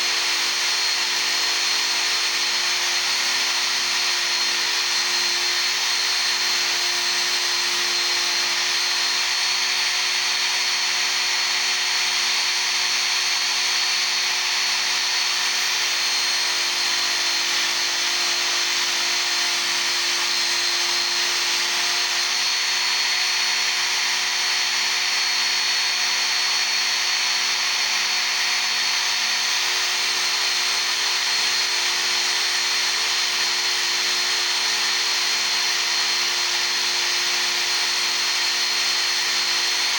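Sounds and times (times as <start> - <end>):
chisel grinding on belt: 0.0 - 22.6
sharpener motor whine: 0.0 - 39.9.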